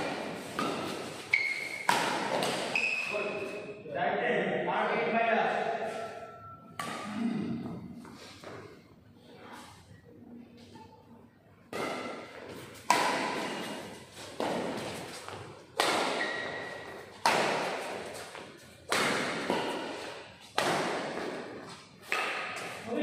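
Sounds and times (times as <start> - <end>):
rackets hitting shuttlecock: 0.0 - 3.6, 5.9 - 7.2, 11.7 - 22.9.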